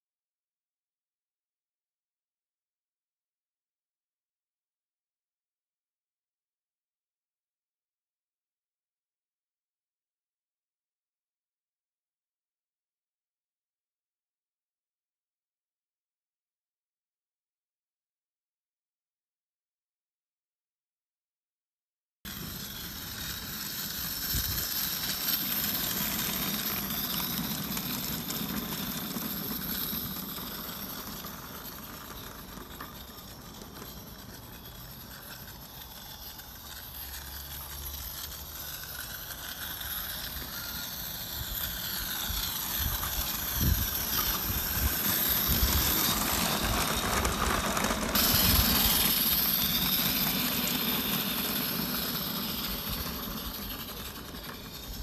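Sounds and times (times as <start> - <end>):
steam hissing: 48.2 - 55.0.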